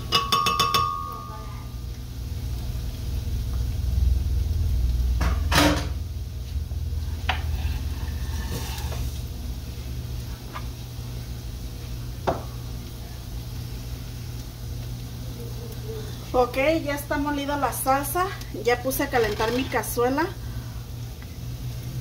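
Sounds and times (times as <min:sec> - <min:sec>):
low steady hum: 0:00.0 - 0:22.0
dishes knocking on counter: 0:12.2 - 0:12.5.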